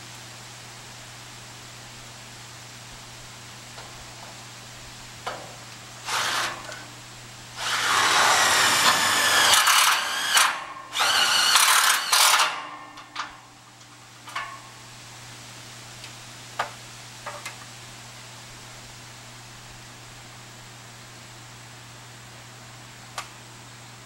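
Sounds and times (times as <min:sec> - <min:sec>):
power drill whining: 0:06.1 - 0:06.8, 0:07.6 - 0:12.7.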